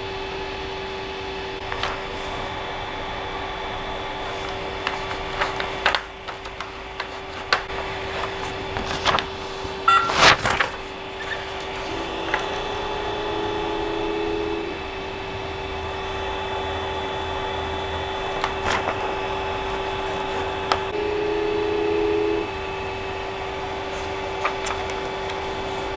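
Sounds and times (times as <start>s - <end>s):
paper rustling: 1.6s - 2.5s, 4.1s - 12.7s, 18.2s - 20.9s, 23.8s - 25.9s
stepper motors whining: 9.9s - 19.8s.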